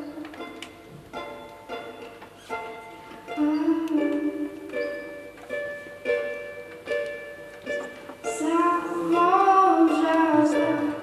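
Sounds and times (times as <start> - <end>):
ukulele chords strummed: 0.0 - 11.0
young woman singing: 3.4 - 4.7, 8.2 - 11.0.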